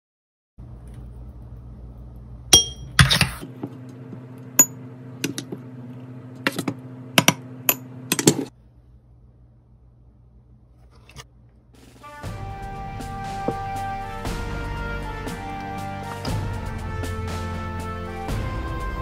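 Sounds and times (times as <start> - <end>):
low steady hum: 0.6 - 19.0
metal spoon clinking on glass bowl: 2.6 - 2.9.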